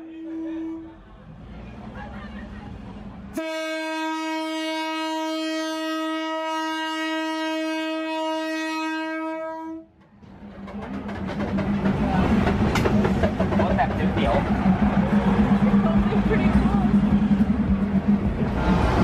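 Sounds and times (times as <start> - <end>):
train horn: 0.0 - 1.0, 3.4 - 9.9
train rumbling past: 8.9 - 19.0.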